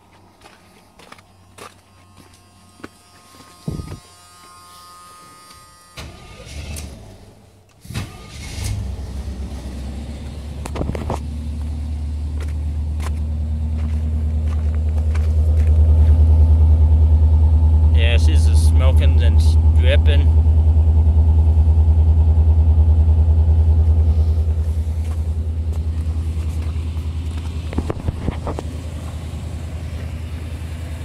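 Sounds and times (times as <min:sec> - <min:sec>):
footsteps on icy gravel: 0:00.0 - 0:05.6, 0:10.8 - 0:16.4, 0:24.4 - 0:29.3
engine cranking and idling: 0:06.0 - 0:31.0.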